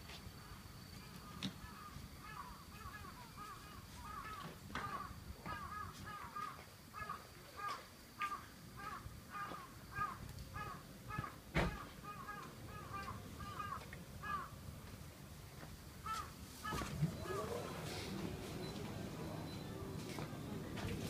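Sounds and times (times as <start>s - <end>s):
crows cawing: 1.6s - 14.6s, 16.0s - 17.5s.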